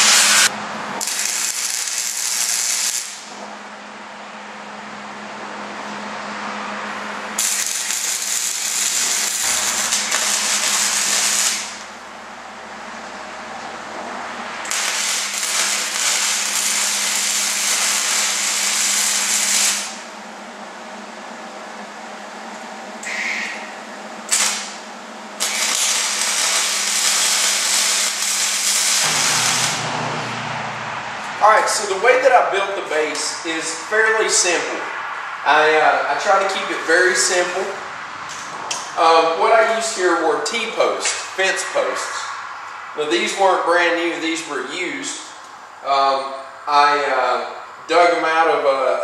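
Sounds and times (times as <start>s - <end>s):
electric arc welder crackling: 0.0s - 3.4s, 7.3s - 12.0s, 14.5s - 20.1s, 24.2s - 30.6s.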